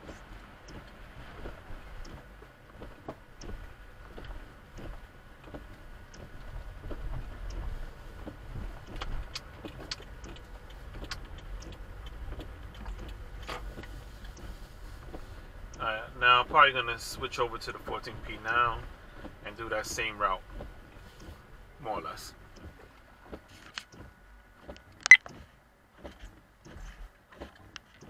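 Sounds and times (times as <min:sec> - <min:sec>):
car road and engine rumble: 0:00.0 - 0:28.0
light clicks and rattles: 0:00.0 - 0:28.0.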